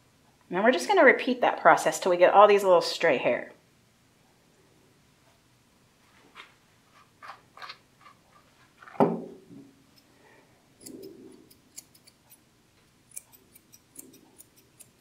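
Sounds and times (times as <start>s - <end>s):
knock: 9.0s - 9.7s
scissors snipping hair: 10.8s - 12.4s, 13.1s - 15.0s.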